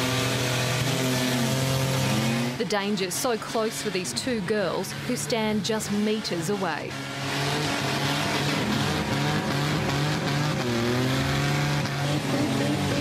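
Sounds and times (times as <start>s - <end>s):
car engine at high revs: 0.0s - 13.0s.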